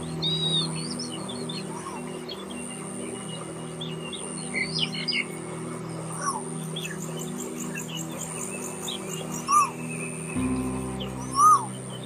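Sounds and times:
soft music drone: 0.0s - 12.0s
songbirds chirping: 0.0s - 12.0s
bird trill: 10.4s - 12.0s
whistled bird note: 10.4s - 12.0s.

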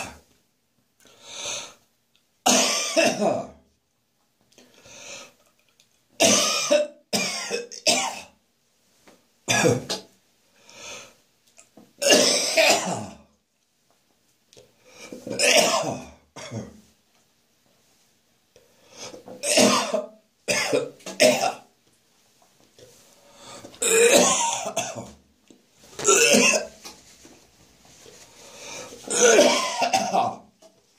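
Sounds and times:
person coughing and gagging: 2.5s - 3.6s, 6.2s - 8.3s, 9.5s - 10.1s, 12.0s - 13.3s, 15.2s - 16.8s, 19.3s - 21.7s, 23.8s - 25.2s, 26.0s - 26.8s, 29.1s - 30.5s.

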